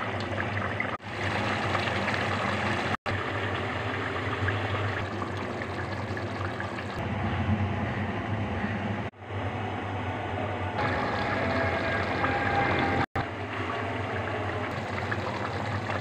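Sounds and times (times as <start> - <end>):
curry bubbling and sizzling: 0.0 - 7.0, 10.8 - 16.0
low hum: 7.0 - 15.9.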